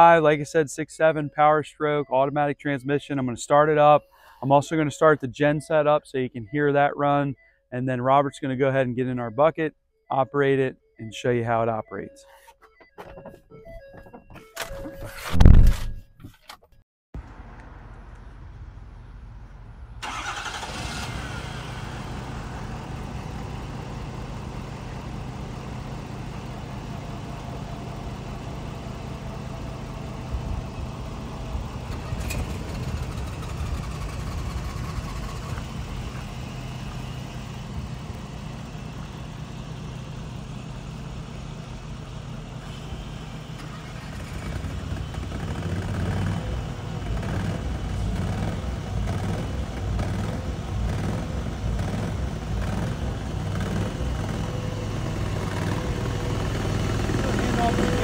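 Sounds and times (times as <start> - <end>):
diesel engine starting and idling: 17.2 - 58.0.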